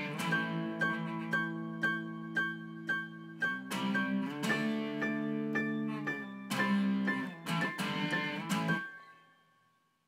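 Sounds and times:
held chords with sharp attacks: 0:00.0 - 0:09.5.

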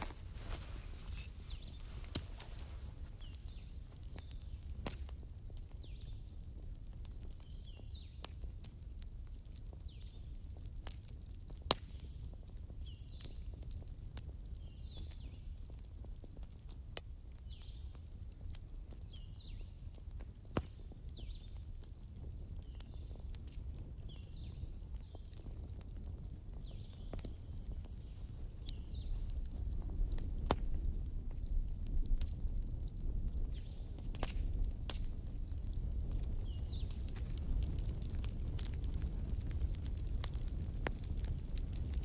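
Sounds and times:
embers crackling and popping: 0:00.0 - 0:42.0.

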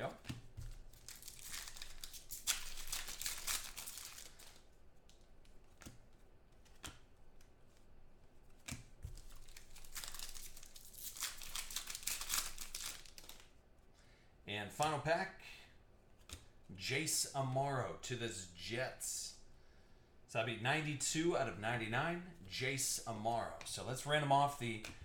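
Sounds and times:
plastic wrapper crinkling and tearing: 0:00.7 - 0:05.2, 0:09.1 - 0:13.6.

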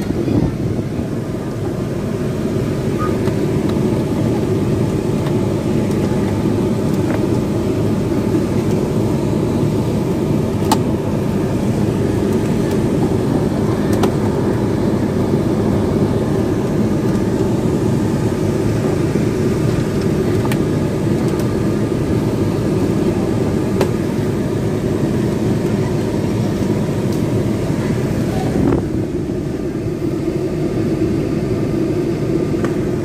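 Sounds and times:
steady low rumble: 0:00.0 - 0:33.0.

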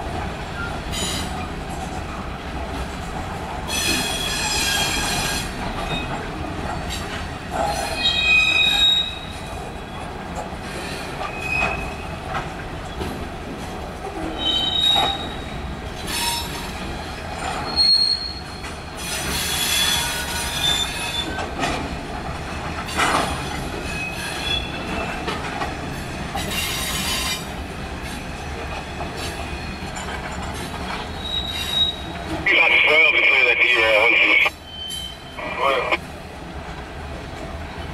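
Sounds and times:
train wheels rumbling on rail: 0:00.0 - 0:37.9
wheel squeals: 0:07.8 - 0:09.4, 0:11.2 - 0:12.0, 0:14.4 - 0:15.6, 0:17.4 - 0:21.4, 0:31.0 - 0:32.2, 0:34.6 - 0:35.4.

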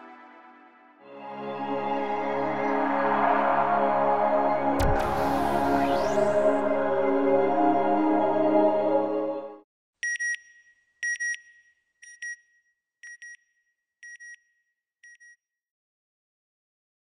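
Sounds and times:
synth music: 0:00.0 - 0:09.6.

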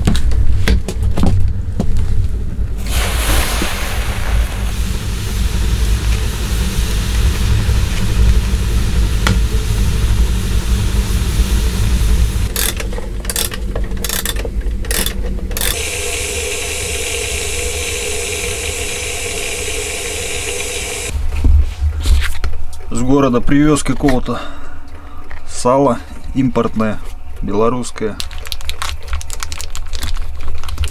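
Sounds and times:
wood stove fire rumbling and hissing: 0:00.0 - 0:13.5, 0:14.6 - 0:23.0
kettle hissing: 0:02.8 - 0:12.6, 0:15.6 - 0:21.2.

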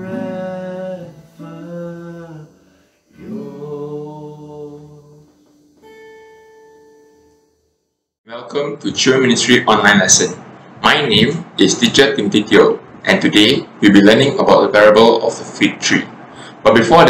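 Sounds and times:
man singing: 0:00.0 - 0:05.4
strummed acoustic guitar: 0:00.0 - 0:07.6.

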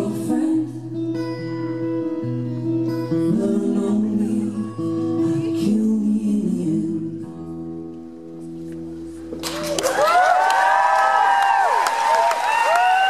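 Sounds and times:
person singing: 0:00.0 - 0:02.3, 0:02.9 - 0:07.8
acoustic guitar: 0:00.0 - 0:10.8.

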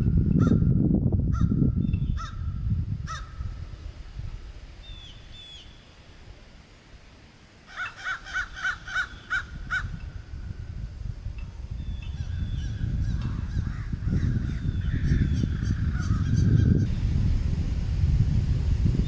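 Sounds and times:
small bird chirping: 0:01.8 - 0:02.2, 0:04.8 - 0:05.9
crows cawing: 0:02.2 - 0:02.5, 0:03.1 - 0:03.4, 0:07.7 - 0:10.0.

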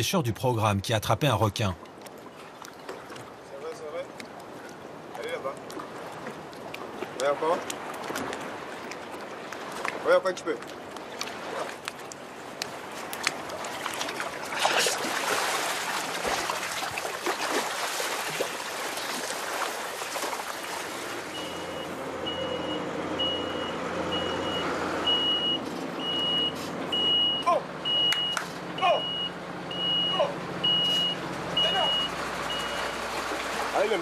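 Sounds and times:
water splashing and sloshing: 0:00.9 - 0:34.0
lorry reversing beeper: 0:21.3 - 0:33.0.

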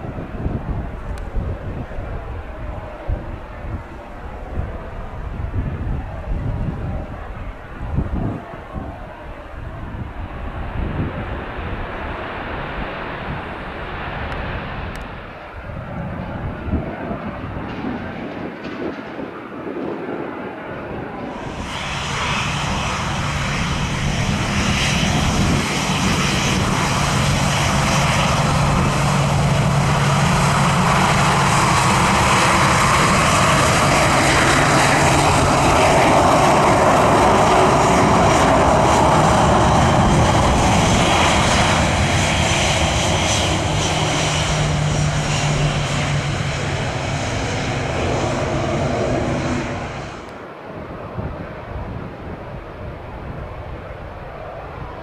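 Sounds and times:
jet engines roaring: 0:00.0 - 0:55.0
low steady drone: 0:21.0 - 0:51.7.

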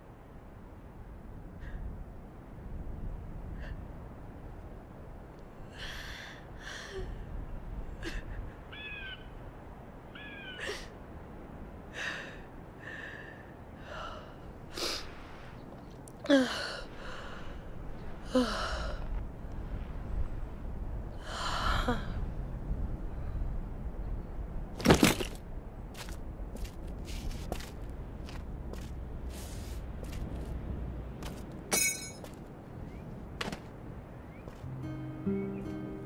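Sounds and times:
woman sobbing and whimpering: 0:08.0 - 0:08.7.

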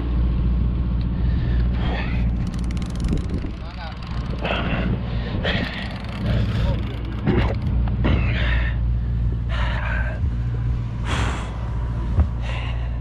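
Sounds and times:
boat engine droning: 0:00.0 - 0:13.0
person breathing heavily: 0:01.1 - 0:02.6, 0:04.4 - 0:06.9, 0:08.0 - 0:13.0.

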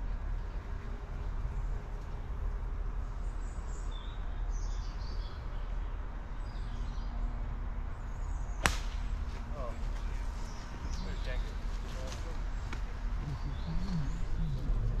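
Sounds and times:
steady low rumble: 0:00.0 - 0:15.0
faint bird chirps: 0:13.2 - 0:15.0.

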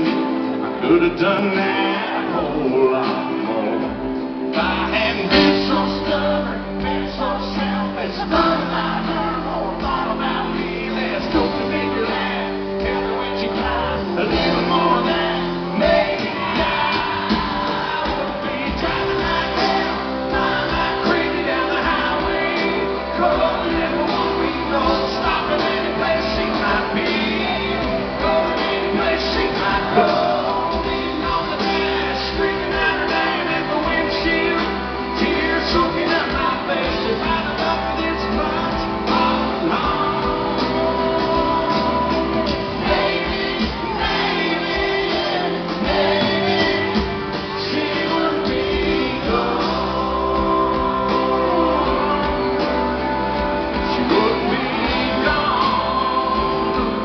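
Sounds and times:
live country band playing: 0:00.0 - 0:57.0
man singing lead vocal: 0:00.0 - 0:57.0.

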